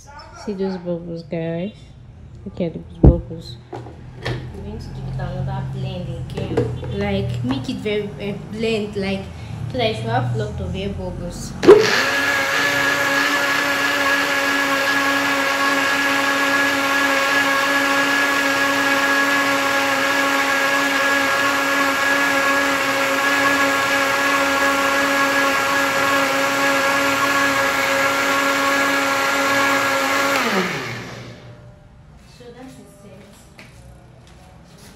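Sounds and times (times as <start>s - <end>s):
blender motor whining: 11.6s - 31.6s.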